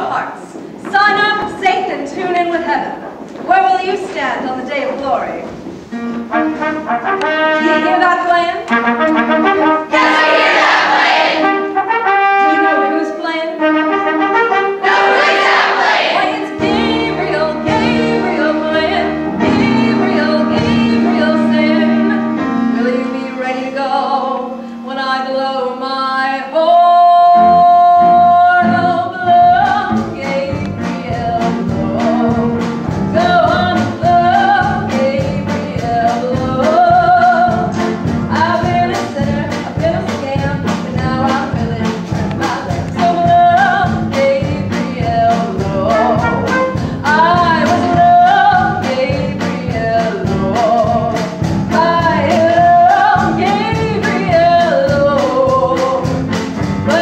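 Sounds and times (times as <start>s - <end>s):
brass pit band playing: 5.9s - 22.8s, 45.6s - 48.3s
woman singing with chorus: 14.8s - 21.1s.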